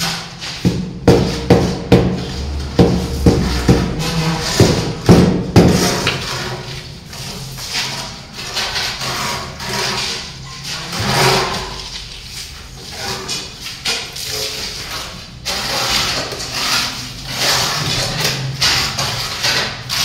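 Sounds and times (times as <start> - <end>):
trowel knocking on tile: 0.0 - 6.3
trowel scraping cement paste: 0.0 - 20.0.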